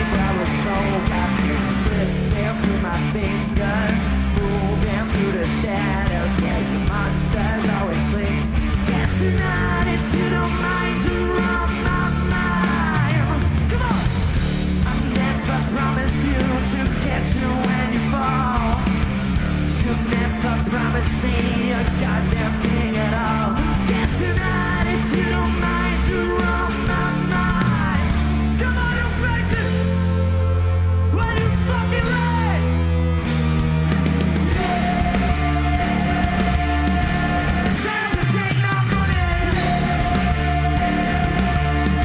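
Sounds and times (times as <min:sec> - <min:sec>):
person singing: 0:00.0 - 0:14.2, 0:19.7 - 0:29.8, 0:34.5 - 0:42.0
rock band playing live: 0:00.0 - 0:42.0.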